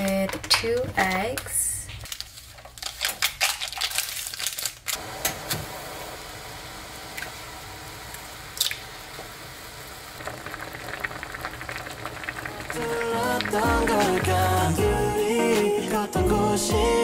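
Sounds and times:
foil packet crinkling: 0.0 - 5.0, 10.2 - 13.6
noodles boiling and bubbling: 3.7 - 14.8.

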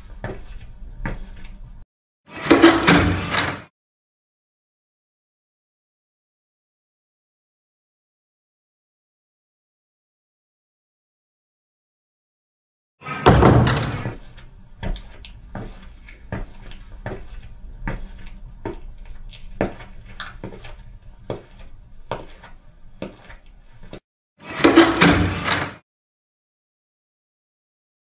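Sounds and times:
footsteps on hard floor: 0.0 - 1.6, 13.2 - 24.0.

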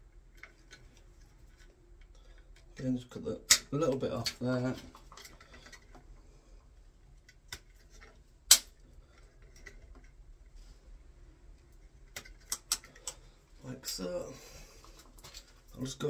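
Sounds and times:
wires being handled: 0.0 - 16.0
wire snips cutting cable: 7.3 - 8.9.

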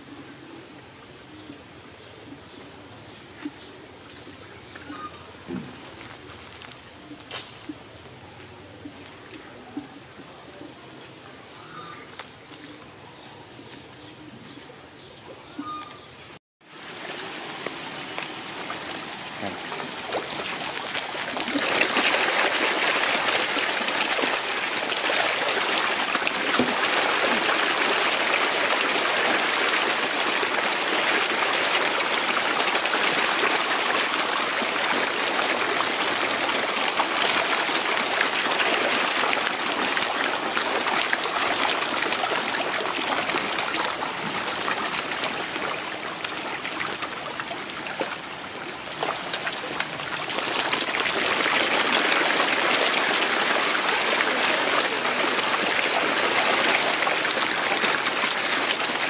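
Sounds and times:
fish splashing water: 16.6 - 59.0.

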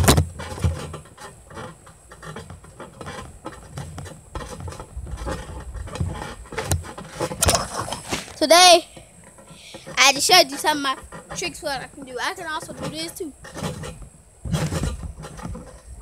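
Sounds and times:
phone handling thumps and rustling: 0.0 - 0.9.

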